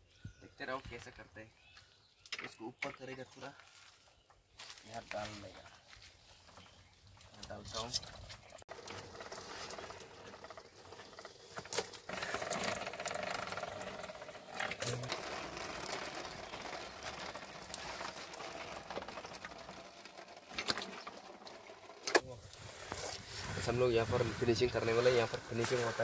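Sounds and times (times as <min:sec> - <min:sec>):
roller mill rollers rattling: 0:08.7 - 0:22.2, 0:22.8 - 0:26.0.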